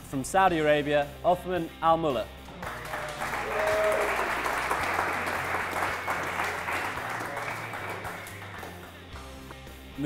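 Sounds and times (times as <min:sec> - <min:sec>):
audience applauding: 0:02.6 - 0:09.1.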